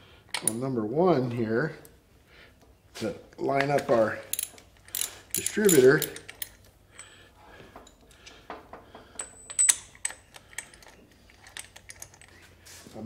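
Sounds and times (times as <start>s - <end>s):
ratchet wrench and tools clicking: 4.2s - 7.1s, 9.2s - 12.4s.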